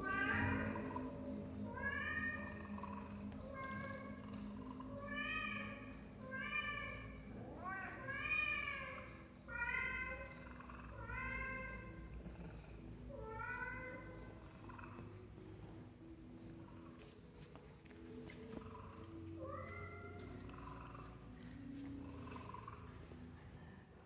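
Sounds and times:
cat meowing: 0.0 - 1.1.

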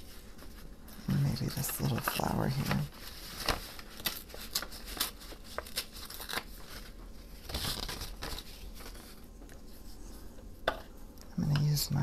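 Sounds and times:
paper crinkling and rustling: 0.0 - 10.5.

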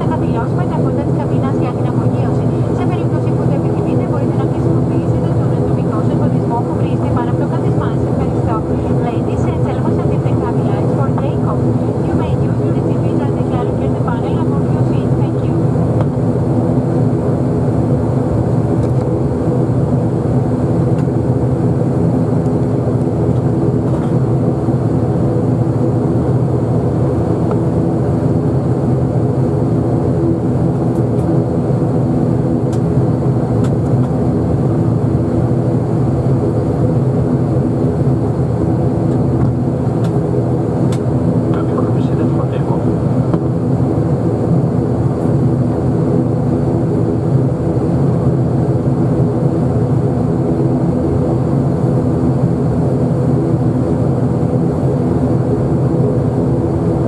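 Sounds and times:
propeller engine droning: 0.0 - 57.0.

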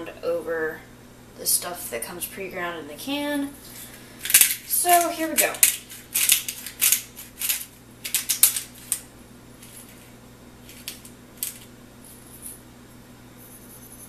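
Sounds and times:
pepper grinder grinding: 3.6 - 12.6.

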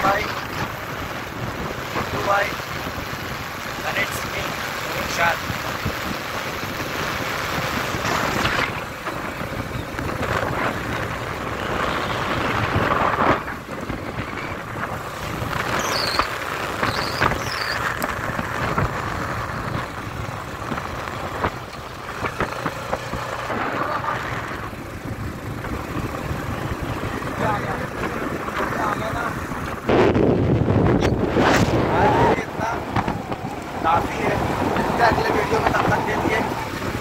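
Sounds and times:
motorcycle engine and road noise: 0.0 - 37.0
wind rushing over microphone: 0.0 - 37.0.

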